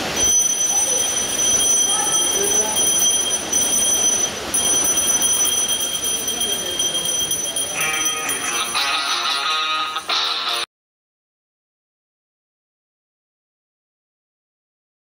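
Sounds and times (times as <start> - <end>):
bell ringing steadily: 0.0 - 10.6
melody: 0.0 - 10.7.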